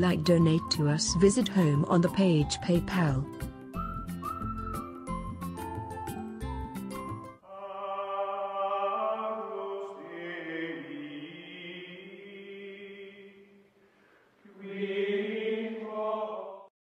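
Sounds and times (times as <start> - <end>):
slow choir-like chanting: 7.4 - 13.8, 14.4 - 16.7.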